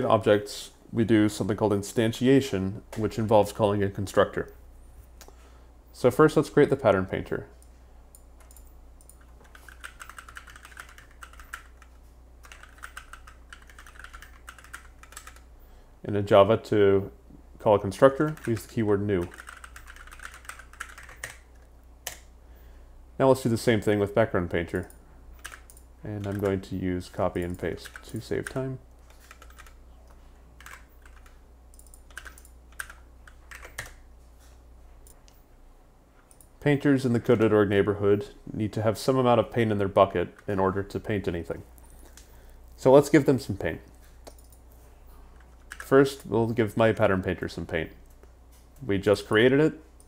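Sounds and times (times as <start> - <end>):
faint low hum: 0.0 - 50.0
computer keyboard keystrokes: 8.1 - 15.5, 18.1 - 22.3, 24.8 - 26.6, 27.4 - 29.8, 30.6 - 34.0, 44.2 - 44.6, 45.4 - 45.9.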